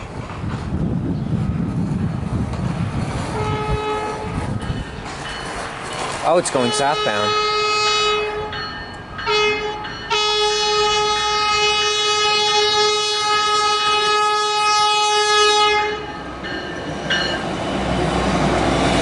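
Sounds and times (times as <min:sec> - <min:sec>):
train horn blasts: 0:03.3 - 0:04.4, 0:06.5 - 0:08.6, 0:09.3 - 0:16.2.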